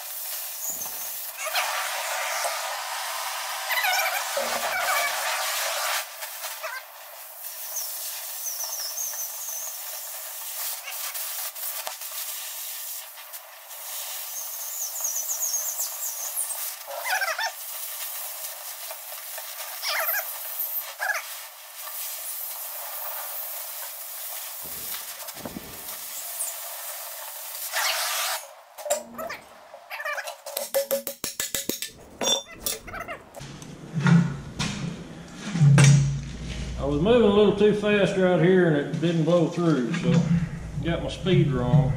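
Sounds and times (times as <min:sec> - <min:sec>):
cutting torch hissing: 0:00.0 - 0:29.6.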